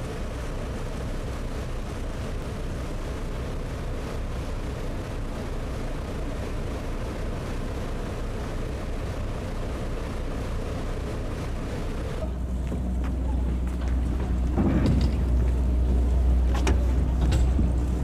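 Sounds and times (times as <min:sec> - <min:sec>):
boat engine running: 0:00.0 - 0:18.0
water rushing along hull: 0:00.0 - 0:18.0
deep low rumble: 0:11.6 - 0:18.0.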